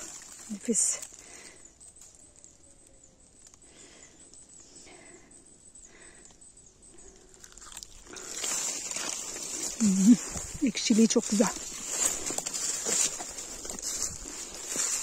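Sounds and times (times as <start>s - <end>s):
footsteps through leaves: 0.0s - 1.1s, 8.2s - 15.0s
rustling dry leaf litter: 0.0s - 1.4s, 8.0s - 15.0s.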